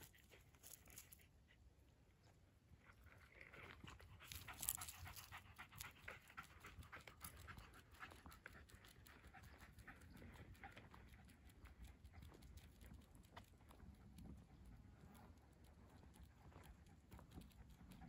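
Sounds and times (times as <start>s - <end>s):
dog panting: 3.8s - 18.0s.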